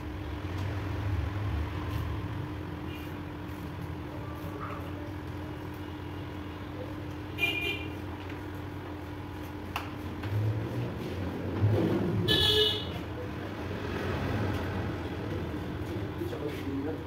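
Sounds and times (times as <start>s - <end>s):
vehicle horn toot: 7.3s - 8.0s, 12.2s - 13.0s.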